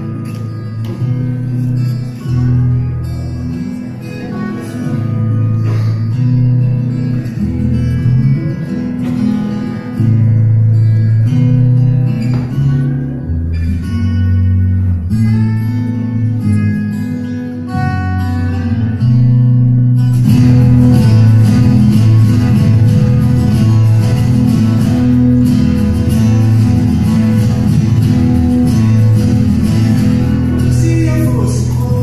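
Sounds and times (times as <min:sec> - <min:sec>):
guitar background music: 0:00.0 - 0:32.0.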